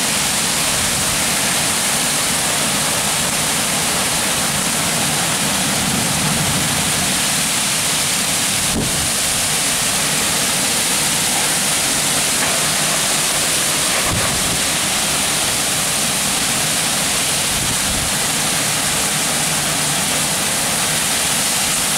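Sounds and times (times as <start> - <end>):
torrential rain: 0.0 - 21.9
strong wind gusts: 4.9 - 18.9.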